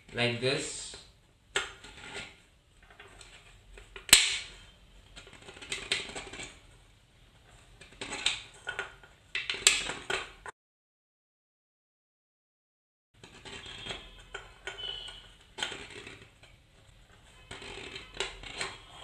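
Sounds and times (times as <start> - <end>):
metal point scraping a can: 13.2 - 19.0.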